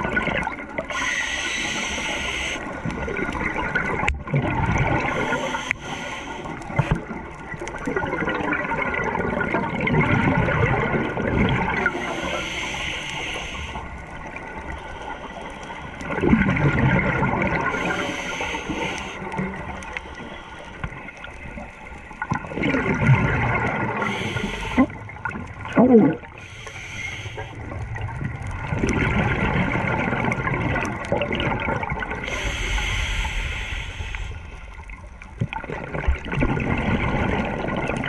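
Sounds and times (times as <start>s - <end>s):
air bubbling underwater: 22.3s - 26.4s, 27.6s - 32.4s.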